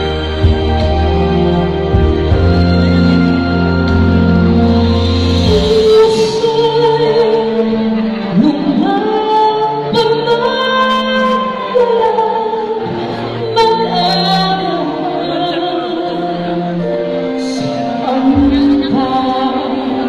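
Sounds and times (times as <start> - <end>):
woman singing into a microphone: 5.3 - 20.0.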